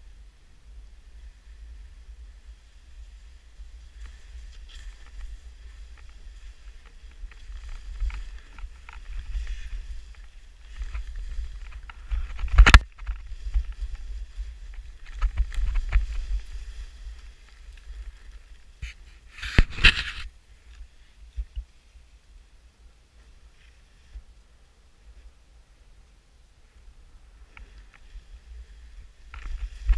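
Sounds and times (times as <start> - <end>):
skis scraping over snow: 1.1 - 21.1, 27.4 - 29.9
wind buffeting microphone: 1.4 - 18.9.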